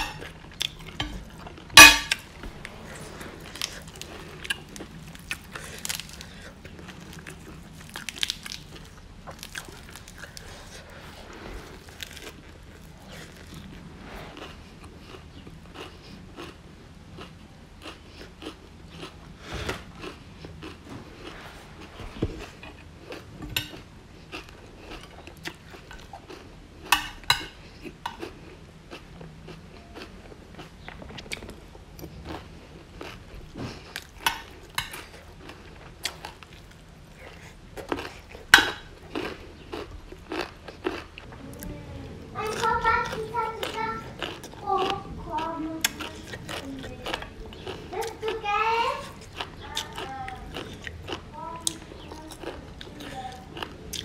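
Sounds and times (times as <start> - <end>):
chewing and crunching food: 0.0 - 54.0
metal spoon clinking on plate: 1.8 - 2.2.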